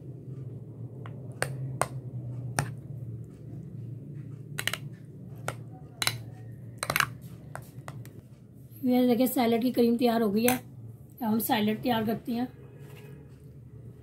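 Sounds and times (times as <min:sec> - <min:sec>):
low hum: 0:00.0 - 0:08.8.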